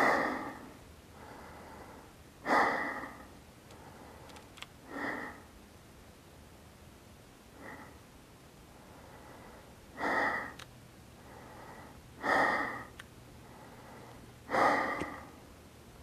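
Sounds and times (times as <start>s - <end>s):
person breathing hard: 0.0s - 5.5s, 7.6s - 8.0s, 8.7s - 10.6s, 11.2s - 15.4s.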